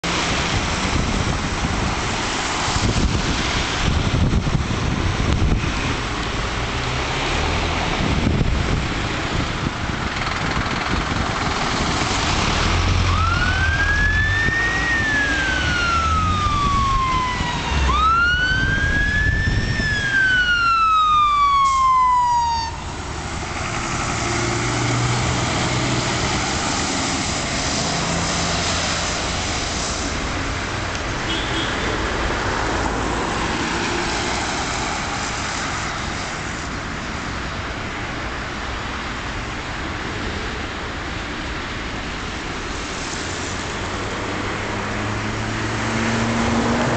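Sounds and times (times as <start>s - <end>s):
fire engine passing close: 0.0s - 37.8s, 42.1s - 46.9s
road traffic noise: 0.0s - 46.9s
fire engine wail siren: 11.7s - 29.9s.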